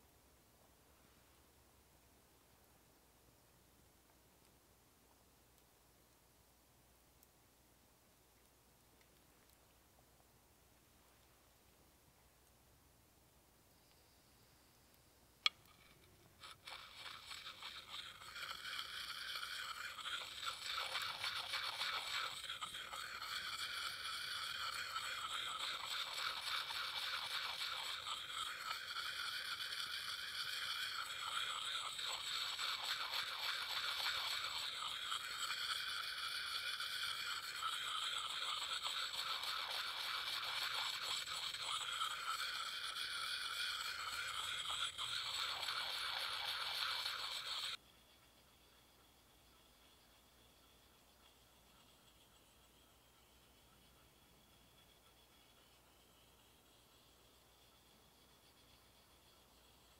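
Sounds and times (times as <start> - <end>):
sharpening puck scraping axe: 15.5 - 59.9.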